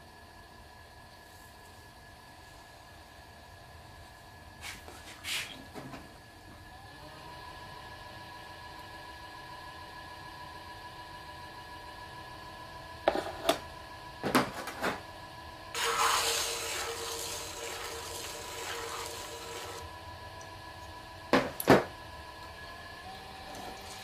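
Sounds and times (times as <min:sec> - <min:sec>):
potter's wheel humming: 0:06.2 - 0:24.0
metal rib scraping clay: 0:15.8 - 0:19.8.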